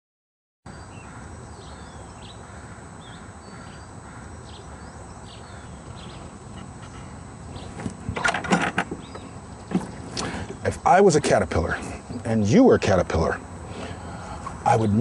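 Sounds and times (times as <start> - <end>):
birds chirping: 0.7 - 15.0
low outdoor rumble: 0.8 - 15.0.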